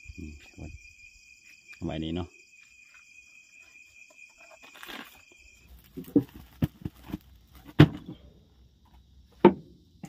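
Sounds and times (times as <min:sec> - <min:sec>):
crickets chirring: 0:00.0 - 0:10.0
sharp knocks and clunks: 0:06.0 - 0:09.8.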